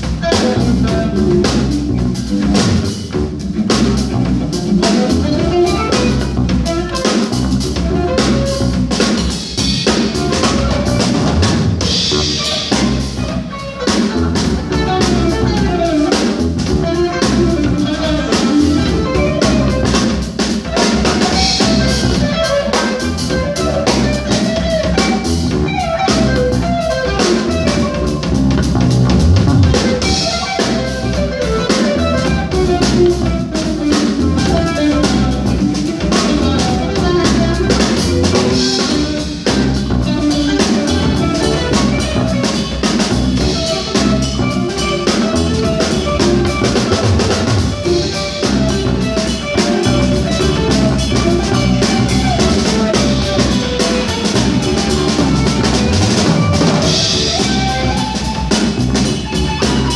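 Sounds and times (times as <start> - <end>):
drum kit: 0.0 - 59.9
jazz-funk band playing live: 0.0 - 59.9.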